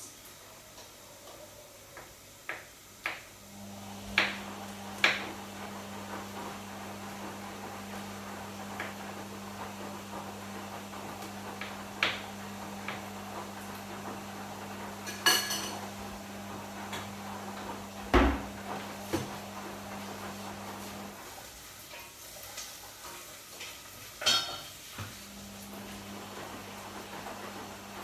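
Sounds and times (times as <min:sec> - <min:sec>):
dishes and utensils clattering: 0:15.0 - 0:16.0, 0:21.9 - 0:25.1.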